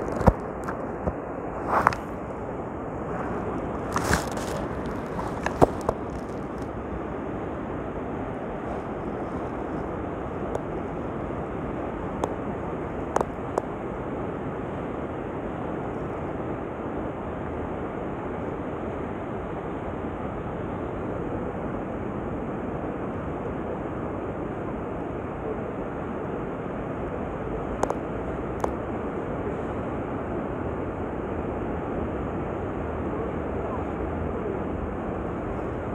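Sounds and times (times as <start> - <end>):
wind rushing: 0.0 - 10.4
sea surf: 0.0 - 35.9.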